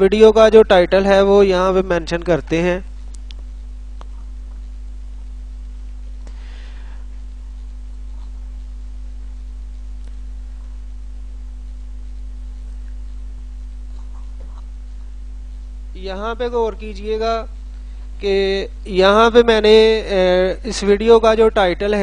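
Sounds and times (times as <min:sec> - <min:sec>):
low electrical hum: 0:00.0 - 0:22.0
faint clicks: 0:03.0 - 0:04.6.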